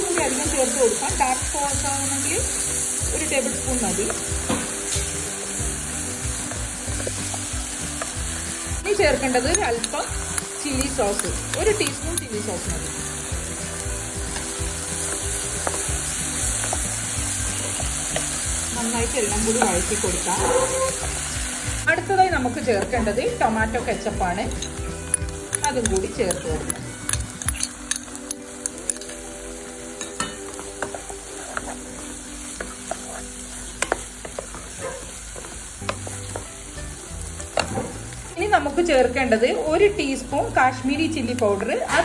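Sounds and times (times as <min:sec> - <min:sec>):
vegetables sizzling in hot oil: 0:00.0 - 0:42.0
spatula clicking and scraping pan: 0:09.0 - 0:18.5, 0:24.4 - 0:29.2, 0:30.0 - 0:36.6.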